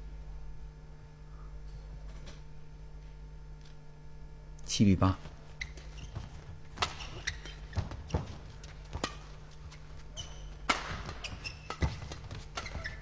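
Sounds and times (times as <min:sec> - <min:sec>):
arena hall ambience: 0:00.0 - 0:13.0
court shoes squeaking: 0:05.2 - 0:13.0
rackets hitting shuttlecock: 0:05.6 - 0:13.0.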